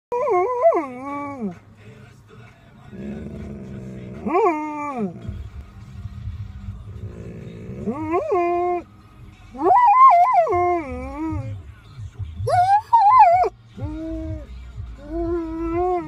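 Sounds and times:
dog howling: 9.6s - 11.5s, 12.5s - 14.4s.

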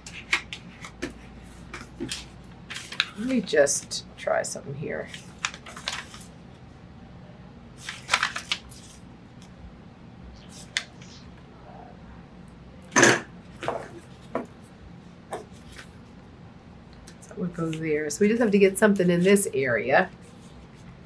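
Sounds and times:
paper rustling on a cutting mat: 0.1s - 3.4s, 5.0s - 6.4s, 7.8s - 9.5s, 20.1s - 21.0s.

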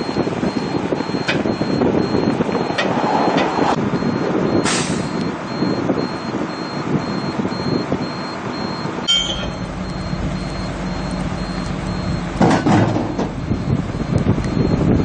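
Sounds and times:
rushing noise: 0.0s - 5.7s
vehicle engine running: 5.2s - 15.0s.

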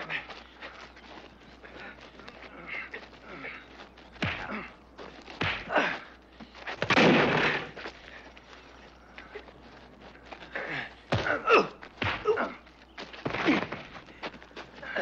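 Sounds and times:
fistfight hits and thuds: 4.2s - 4.6s, 5.4s - 5.8s, 6.8s - 7.8s, 11.1s - 12.4s.

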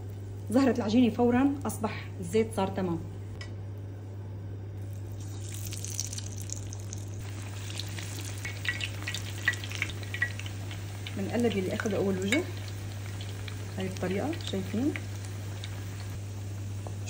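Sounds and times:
patties sizzling in hot oil: 4.8s - 17.0s.

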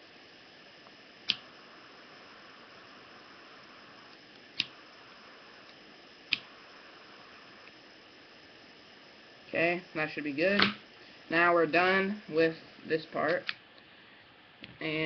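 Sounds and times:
faint steady hiss: 0.0s - 15.0s
lighter clicking: 1.2s - 1.6s, 4.1s - 4.8s, 5.6s - 6.6s.

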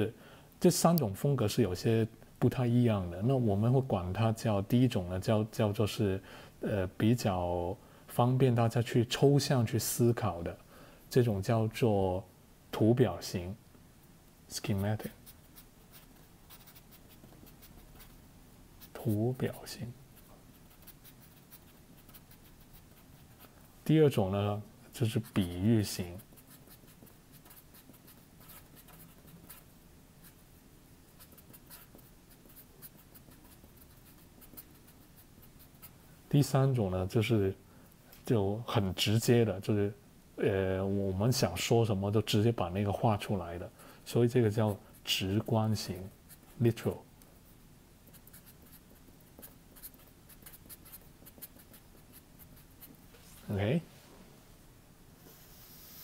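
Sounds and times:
felt-tip marker writing on paper: 15.2s - 18.2s, 20.2s - 23.5s, 26.2s - 30.4s, 31.2s - 36.0s, 48.0s - 53.0s.

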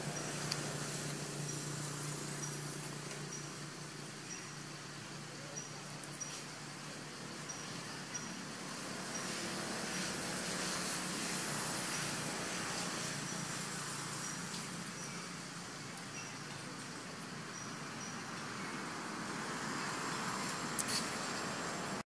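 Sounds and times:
even hiss: 0.0s - 22.0s.

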